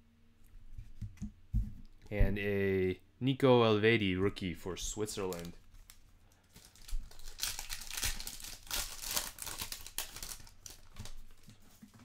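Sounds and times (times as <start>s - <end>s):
foil wrapper tearing and crinkling: 5.1s - 11.5s.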